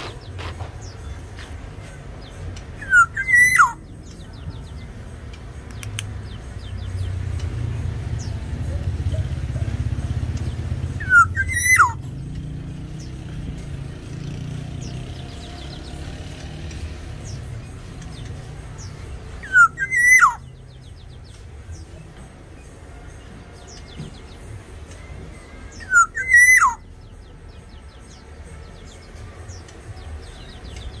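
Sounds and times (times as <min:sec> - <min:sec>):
bird whistling: 0:02.8 - 0:03.9, 0:10.4 - 0:12.0, 0:19.4 - 0:20.6, 0:25.7 - 0:26.9.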